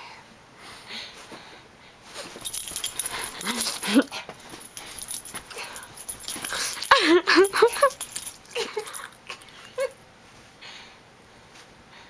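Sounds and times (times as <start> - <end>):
bedding rustling: 2.1 - 8.5.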